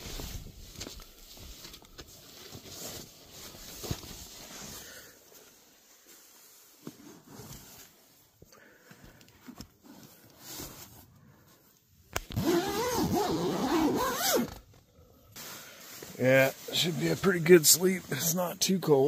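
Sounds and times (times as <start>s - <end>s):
rustling of tent fabric: 0.0s - 19.0s
tent zipper pulled: 12.2s - 15.5s.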